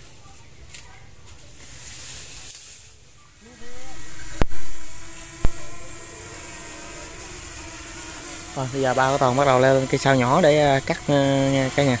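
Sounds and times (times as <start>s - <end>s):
drone propellers humming: 3.4s - 12.0s.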